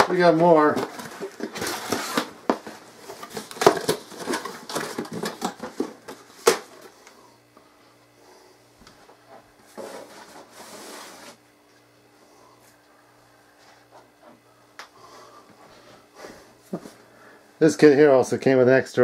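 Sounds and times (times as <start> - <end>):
packaging rustling: 0.0 - 6.9
faint steady hum: 0.0 - 19.0.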